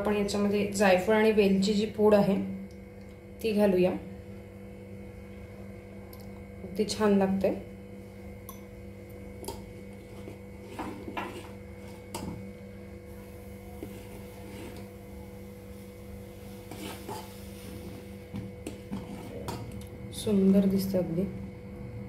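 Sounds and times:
steady hum: 0.0s - 22.0s
spoon scraping and tapping pot: 10.2s - 12.4s, 16.6s - 17.4s.

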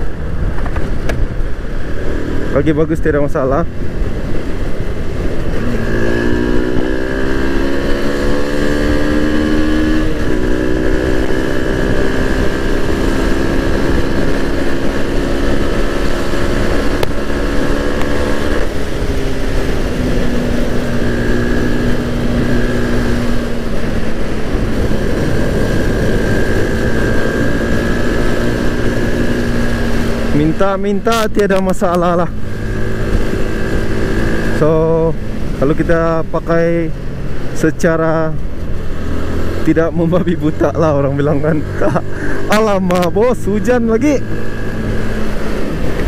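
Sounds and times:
scooter engine running: 3.6s - 31.4s, 38.4s - 46.0s.

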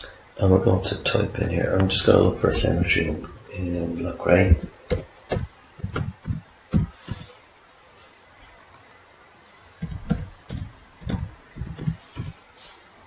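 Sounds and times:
computer keyboard keystrokes: 9.8s - 12.3s.

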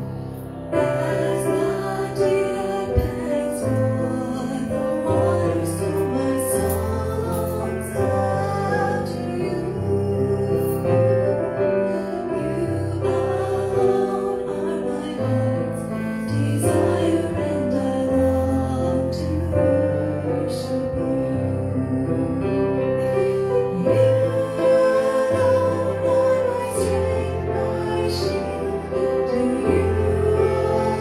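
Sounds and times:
woman singing into microphone: 0.9s - 11.1s.

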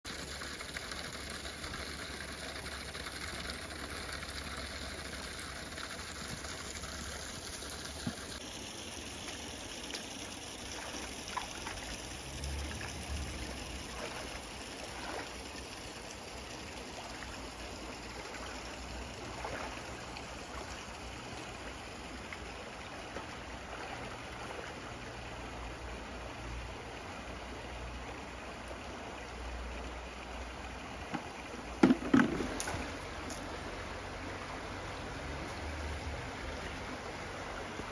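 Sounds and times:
rubber boots splashing in water: 10.6s - 15.5s, 18.0s - 20.8s, 23.0s - 24.8s
rocky stream rushing: 27.9s - 37.9s.

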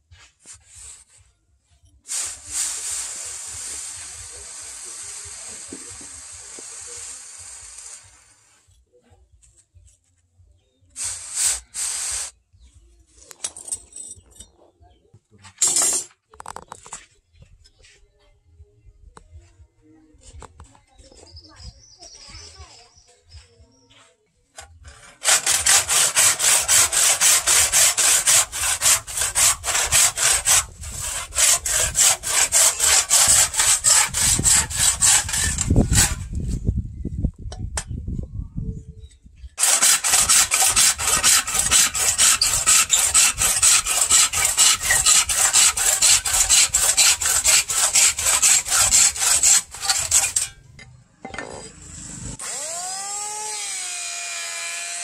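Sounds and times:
handsaw cutting wood: 2.1s - 8.4s, 11.0s - 12.3s, 24.9s - 36.5s, 39.6s - 50.6s, 51.6s - 55.0s.

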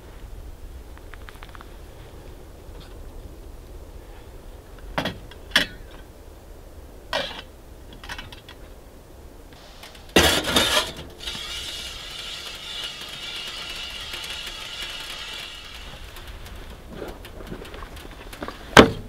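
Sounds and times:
steady hiss: 0.0s - 19.0s
sharp mechanical clicks and knocks: 9.8s - 19.0s
loud clatter: 10.0s - 19.0s.

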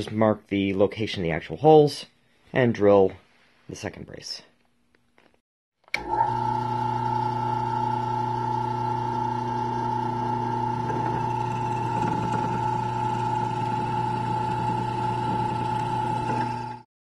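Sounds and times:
drill bit boring into wood: 5.9s - 16.9s
drill press motor hum: 5.9s - 16.9s.

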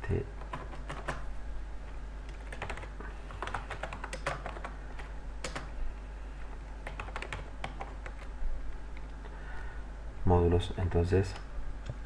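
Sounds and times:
steady low hum: 0.0s - 12.0s
keyboard typing: 0.4s - 1.2s, 2.3s - 5.7s, 6.8s - 8.3s.

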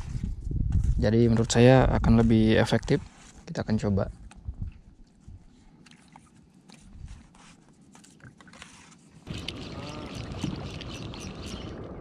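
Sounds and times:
boat motor: 9.3s - 12.0s.

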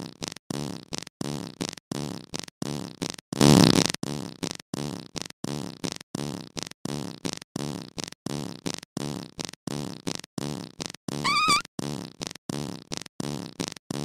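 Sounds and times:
fart sounds: 0.3s - 14.0s
high wavering squeal: 11.3s - 11.6s.

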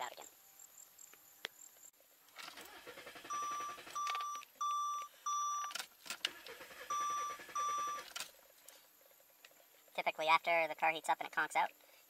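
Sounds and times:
car warning chime beeps: 3.2s - 5.8s, 6.6s - 8.1s.

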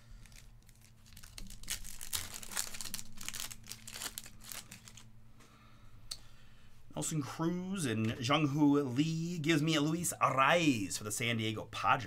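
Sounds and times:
foil wrapper crinkling and tearing: 0.0s - 5.1s.

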